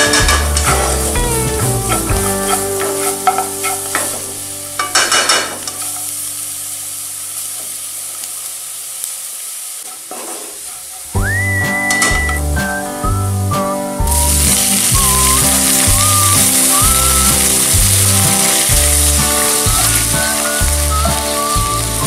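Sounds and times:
spatula scraping pan: 0.0s - 6.2s, 9.8s - 11.2s
background music: 0.0s - 6.5s, 11.2s - 22.0s
garlic sizzling in butter: 0.0s - 12.8s, 14.0s - 22.0s.

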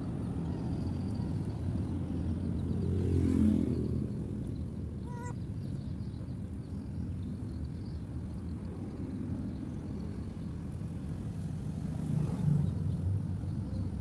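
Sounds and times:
low traffic rumble: 0.0s - 14.0s
vehicle passing: 2.6s - 4.4s.

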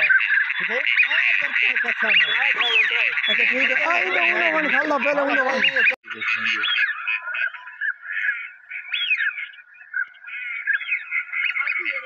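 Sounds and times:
high chirping animal calls: 0.0s - 12.0s
man's voice: 1.6s - 6.7s.

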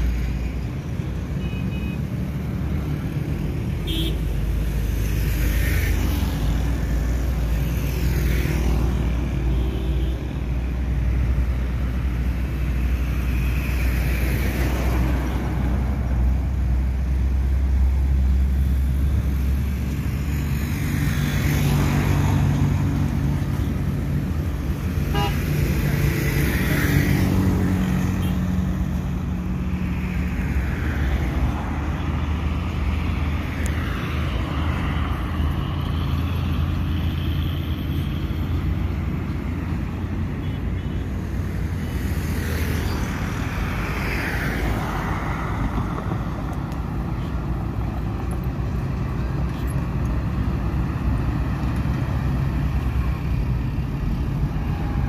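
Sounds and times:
cars driving past: 0.0s - 55.0s
diesel trucks driving past: 38.4s - 55.0s.

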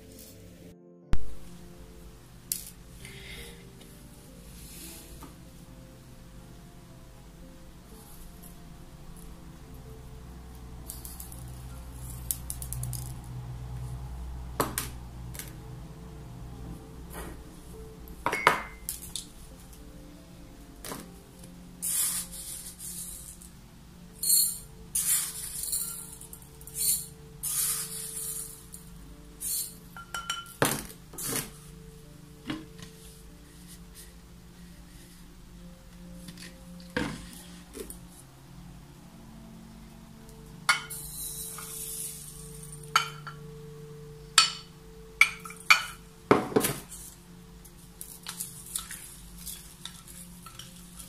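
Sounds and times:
glass jar clinking: 18.2s - 19.1s, 24.2s - 28.8s, 29.4s - 30.9s, 40.7s - 43.5s, 44.4s - 46.7s
seeds rattling into glass bowl: 24.2s - 30.6s, 40.7s - 43.3s.

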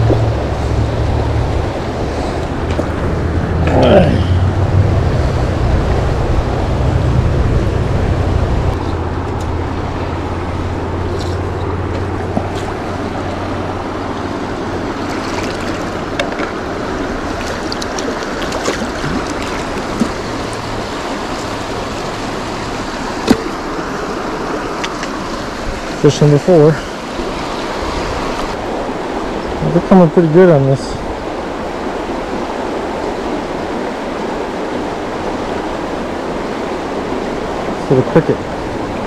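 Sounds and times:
low rumble: 0.0s - 14.2s
river water rushing: 0.0s - 39.0s.

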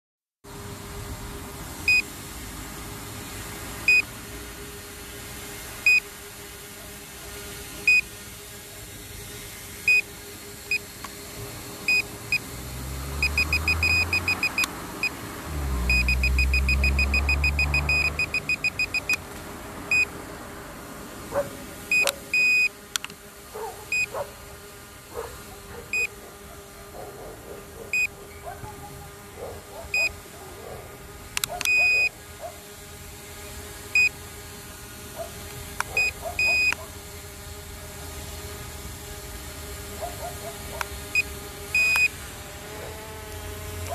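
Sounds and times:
rapid beeping: 13.2s - 14.7s, 15.9s - 19.2s
short electronic beeps: 13.2s - 14.7s, 15.9s - 19.2s.

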